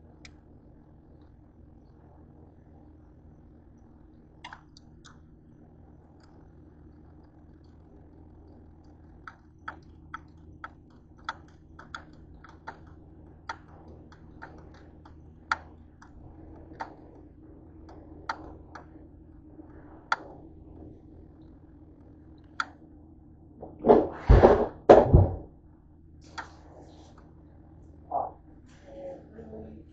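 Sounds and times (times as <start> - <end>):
steady low hum: 0.0 - 29.9
light sharp clicks and taps: 4.4 - 5.2, 8.8 - 17.2.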